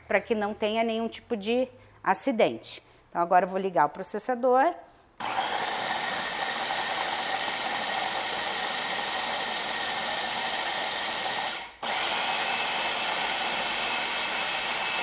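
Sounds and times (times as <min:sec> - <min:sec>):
food processor running: 0:05.2 - 0:15.0.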